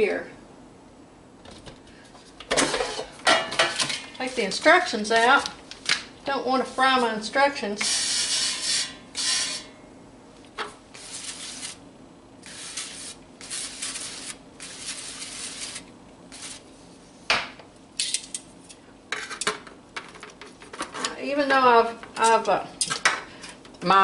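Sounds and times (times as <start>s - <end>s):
spray can hissing: 12.4s - 16.6s.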